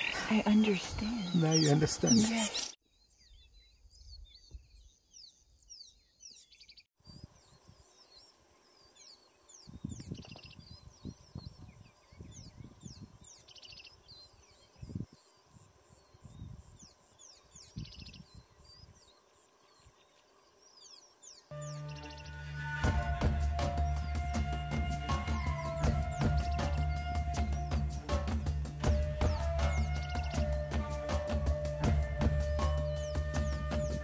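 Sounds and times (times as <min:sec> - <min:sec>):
birds chirping and trilling: 0:00.0 - 0:34.0.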